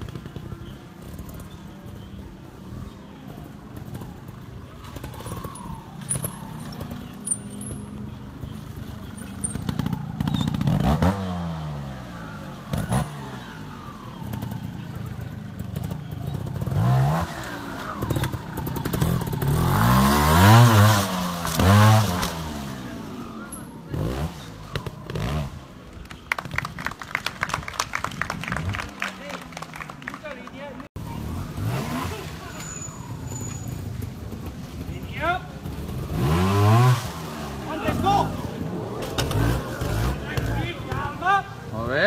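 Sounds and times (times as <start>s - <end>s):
motorcycle revving in bursts: 8.7s - 25.8s, 31.0s - 33.2s, 33.8s - 42.0s.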